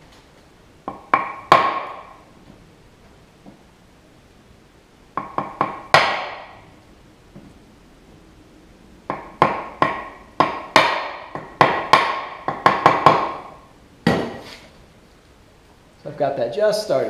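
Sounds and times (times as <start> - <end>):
hatchet knocking into wood: 0.9 - 2.1, 5.2 - 6.5, 9.1 - 13.5.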